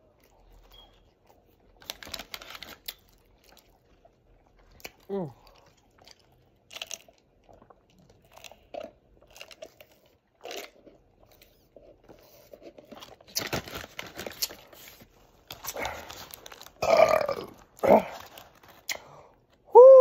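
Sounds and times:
wet smacking and chewing: 0.0s - 19.6s
sipping and swallowing: 3.6s - 12.8s
burp: 16.8s - 18.2s.

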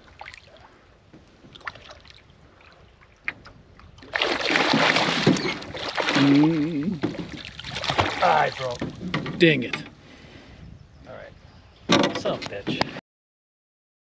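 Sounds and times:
fish thrashing and splashing: 4.0s - 9.2s.

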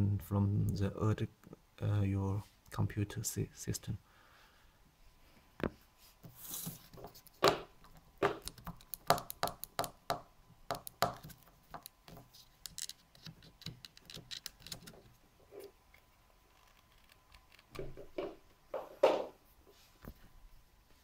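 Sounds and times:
objects being handled: 5.6s - 9.9s, 10.7s - 20.3s.

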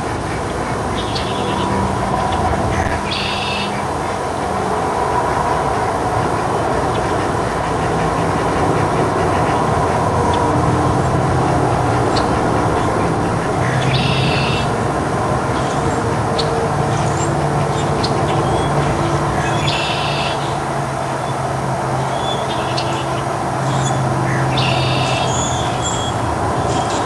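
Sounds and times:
low mechanical rumble: 0.0s - 19.6s
continuous hum: 0.0s - 27.0s
bird buzzy call: 13.6s - 14.7s.

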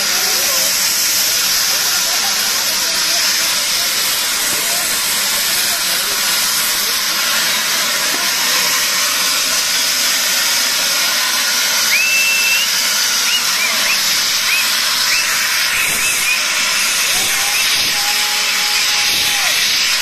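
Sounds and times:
gas jet blasting hiss: 0.0s - 20.0s
short whistles: 11.8s - 16.6s.

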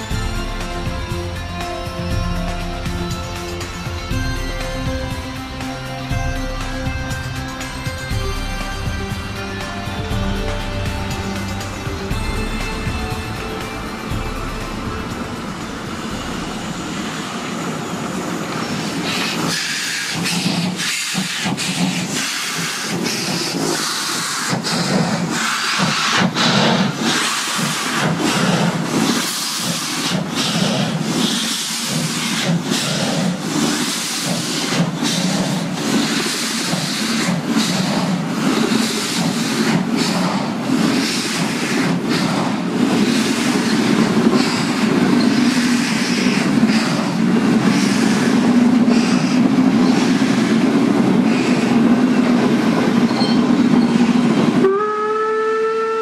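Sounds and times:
steam locomotive exhaust beats: 0.0s - 56.0s
train coaches rolling by: 0.0s - 56.0s
steam hissing: 14.8s - 54.9s.

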